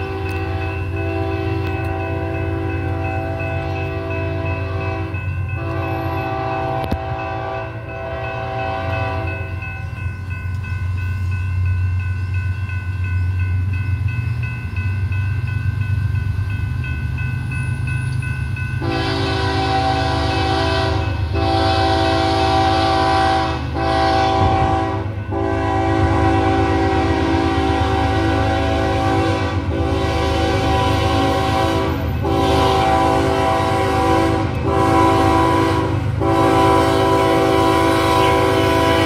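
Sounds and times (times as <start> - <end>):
locomotive air horn: 0.0 - 9.6, 18.8 - 39.0
low rumble of train: 0.0 - 39.0.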